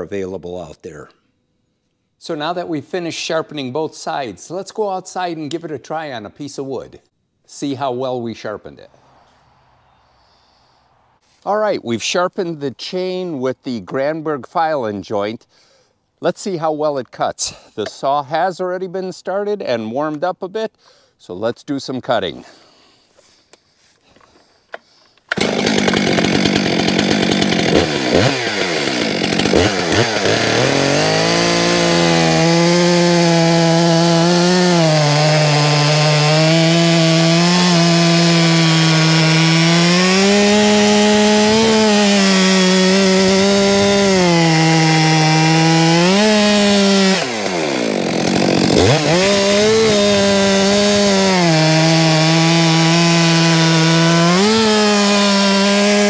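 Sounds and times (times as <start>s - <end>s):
chainsaw cutting a log: 25.3s - 56.0s.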